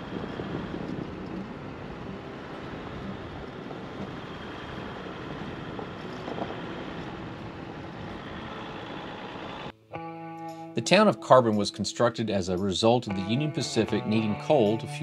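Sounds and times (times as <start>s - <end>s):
vehicle engine and tyre noise: 0.0s - 9.7s.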